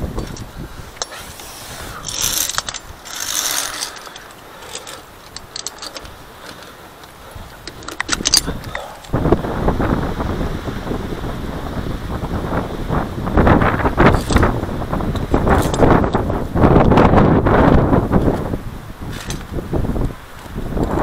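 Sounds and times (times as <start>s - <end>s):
carabiners clicking on steel cable: 0.0s - 9.2s, 14.0s - 16.3s, 19.1s - 19.6s
climbing gear rustling: 0.0s - 9.4s, 14.0s - 16.8s, 17.6s - 19.5s
wind buffeting microphone: 0.0s - 21.0s.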